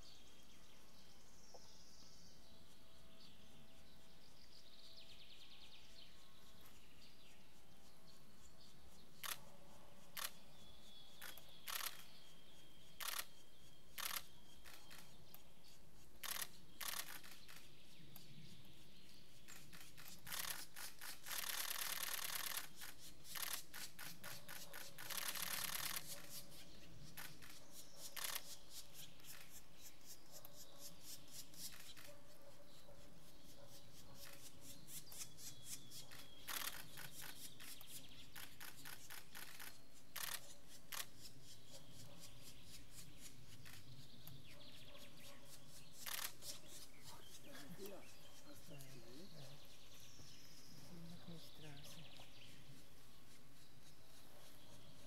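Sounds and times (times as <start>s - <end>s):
camera shutter clicks: 11.6s - 12.1s, 13.0s - 13.3s, 14.0s - 14.3s, 16.2s - 17.6s, 25.0s - 26.0s, 28.2s - 28.5s, 36.4s - 36.8s, 38.6s - 41.1s.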